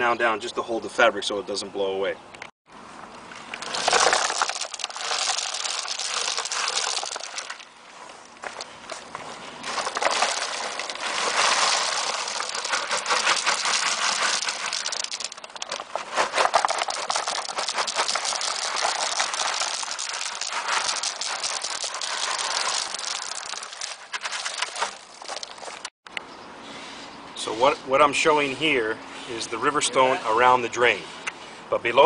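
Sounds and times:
pebbles clattering: 3.4s - 25.9s.

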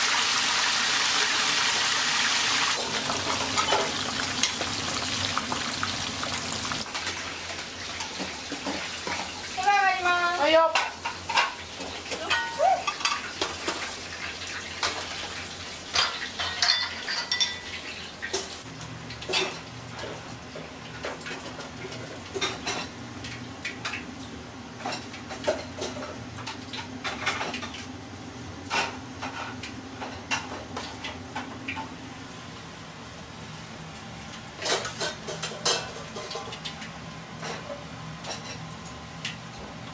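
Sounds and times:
metal utensils clinking on tray: 15.9s - 17.8s.

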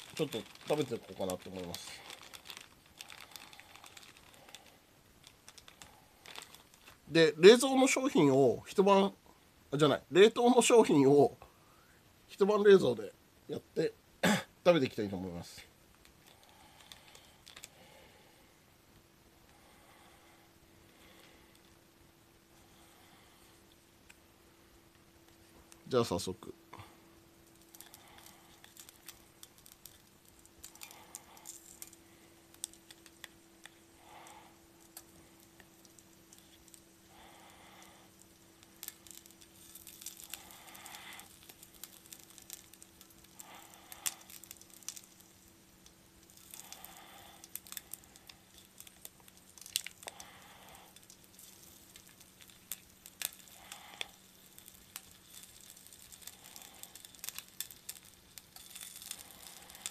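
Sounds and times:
packaging crinkling: 0.0s - 7.7s, 15.9s - 17.8s, 27.2s - 59.9s
low steady hum: 0.0s - 59.9s.

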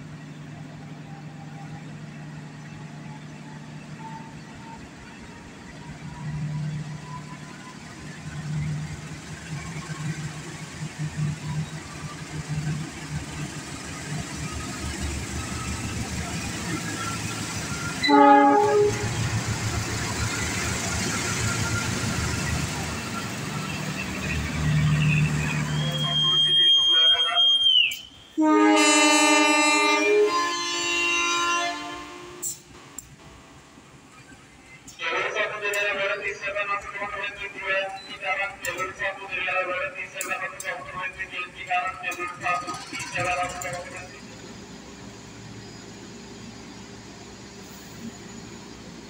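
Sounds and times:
locomotive diesel engine hum: 0.0s - 49.0s
locomotive air horn blast: 18.0s - 19.3s, 28.4s - 32.6s.

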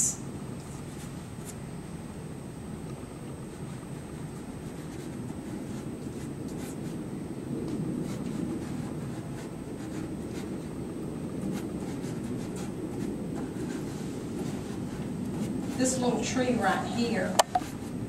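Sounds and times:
low background hum: 0.0s - 18.0s
pastel stick scratching on paper: 4.6s - 7.0s, 8.0s - 10.8s, 11.4s - 16.1s.

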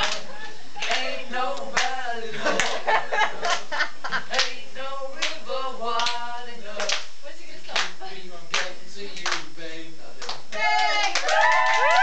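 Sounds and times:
hand claps: 0.0s - 0.2s, 0.8s - 1.1s, 1.8s - 2.0s, 4.3s - 4.6s, 5.2s - 5.4s, 6.0s - 6.2s, 6.8s - 7.1s, 7.7s - 9.5s, 10.2s - 12.0s
boys singing: 0.0s - 11.1s.

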